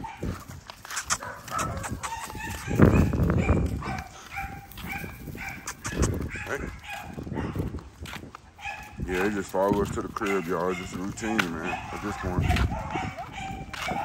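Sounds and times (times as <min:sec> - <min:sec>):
puppies whining and yipping: 0:01.6 - 0:07.7.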